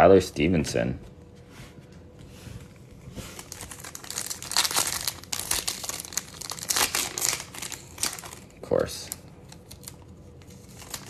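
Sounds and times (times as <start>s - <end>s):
foil wrapper crinkling and tearing: 3.2s - 11.0s.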